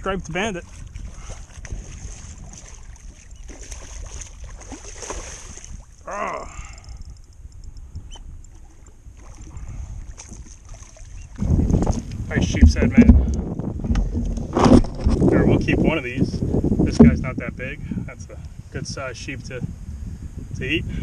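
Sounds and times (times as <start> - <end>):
wind rumble on microphone: 0.0 - 21.0
fish splashing in water: 0.6 - 6.0, 9.2 - 12.1.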